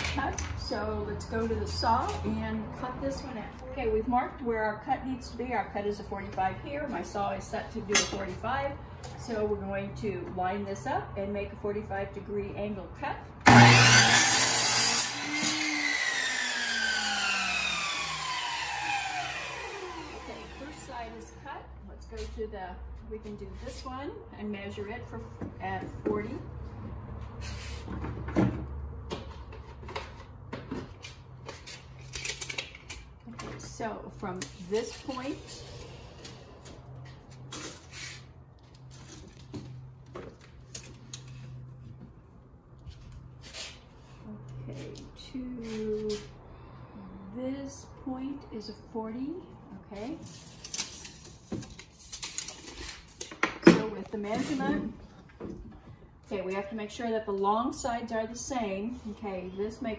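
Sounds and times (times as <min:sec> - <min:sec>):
miter saw running: 0:13.5 - 0:21.0.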